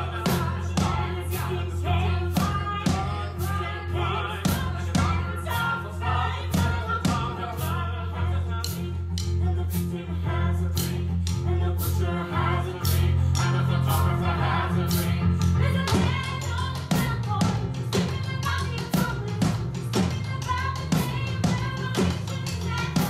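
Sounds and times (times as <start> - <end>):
woman singing: 15.6 - 23.0.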